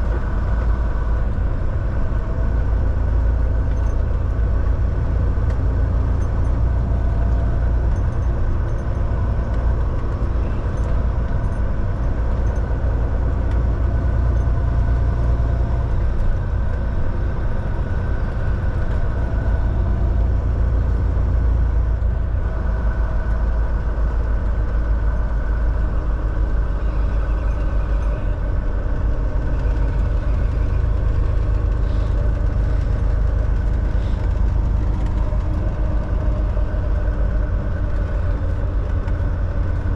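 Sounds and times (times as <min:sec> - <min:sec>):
truck diesel engine running: 0:00.0 - 0:39.9.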